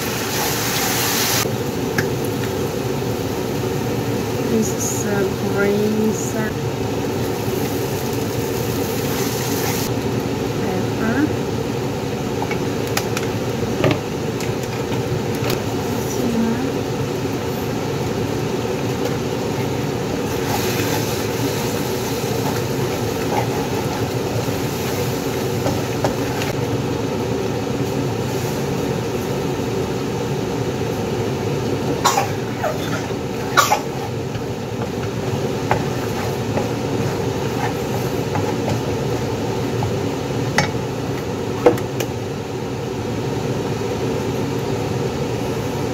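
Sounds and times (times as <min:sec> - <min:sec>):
wooden spatula scraping a wok: 0:22.4 - 0:24.2, 0:34.8 - 0:39.2.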